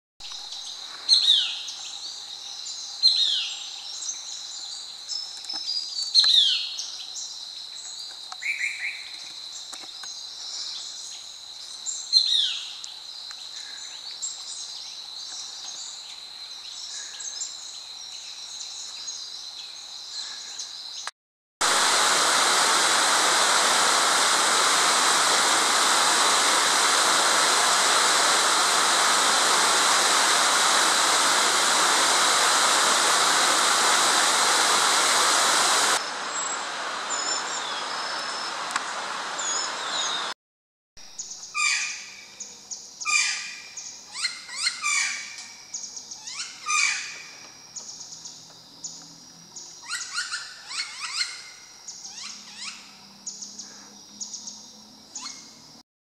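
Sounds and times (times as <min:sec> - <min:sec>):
fast-flowing river: 0:21.7 - 0:40.3
loud sharp bird calls: 0:43.0 - 0:45.4, 0:46.2 - 0:47.4, 0:49.8 - 0:52.9.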